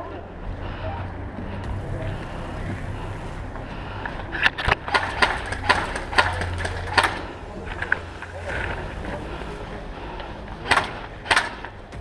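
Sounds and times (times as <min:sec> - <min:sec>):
airsoft rifle shots: 0:04.9 - 0:07.3.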